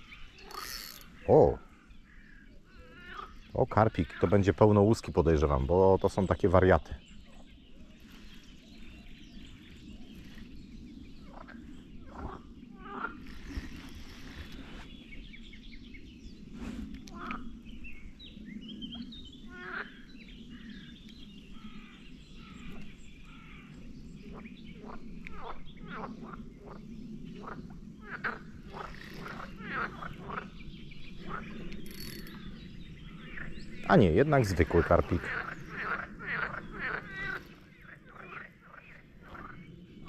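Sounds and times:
short bird calls: 0.0 - 4.3
frogs croaking: 0.0 - 7.6, 9.4 - 14.5, 17.0 - 40.0.

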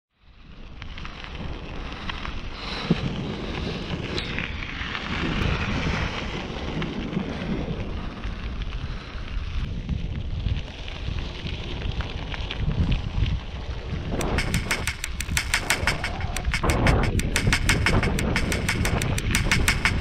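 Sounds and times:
bike tyres rolling on dirt: 0.1 - 17.4
wind buffeting microphone: 0.3 - 20.0
small clicks and rattles: 14.2 - 20.0.

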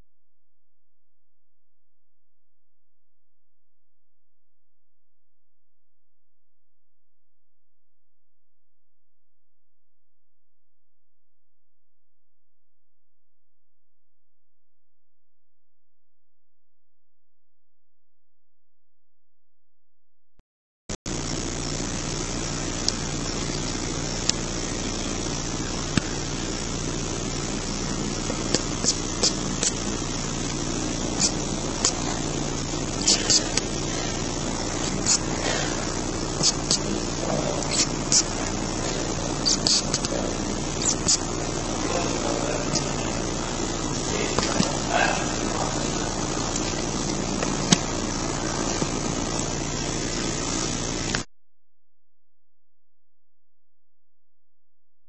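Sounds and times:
steady low hum: 21.0 - 51.3
engine idling: 21.1 - 51.3.

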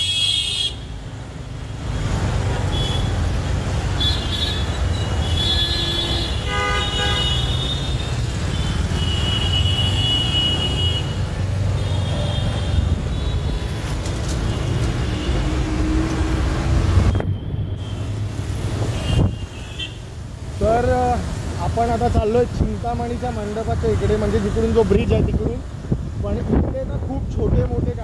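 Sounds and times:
vehicle horns honking: 0.0 - 1.0, 2.6 - 3.3, 3.9 - 11.2, 18.9 - 20.1
traffic rumble: 0.0 - 28.0.

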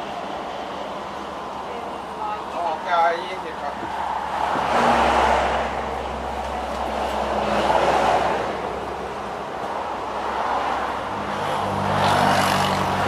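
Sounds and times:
cars passing: 0.0 - 13.0
engine hum: 0.0 - 13.0.

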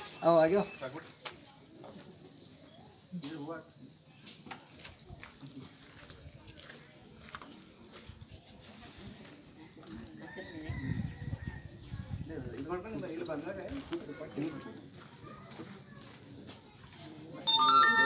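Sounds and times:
cricket chirping: 0.0 - 18.0.

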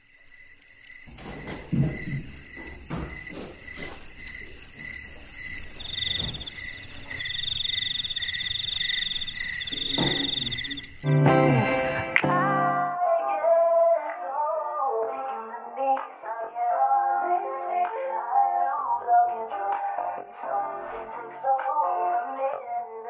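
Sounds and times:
crickets chirping: 0.0 - 11.1
high insect trill: 0.0 - 11.1
television set down on wooden table: 10.0 - 10.4.

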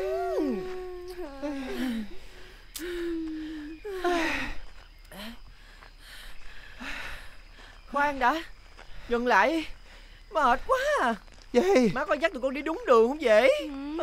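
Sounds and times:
women groaning and sighing: 0.0 - 5.4.

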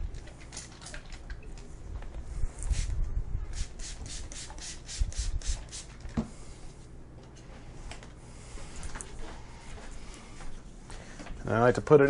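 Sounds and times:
spray bottle spritzes: 3.5 - 5.9.

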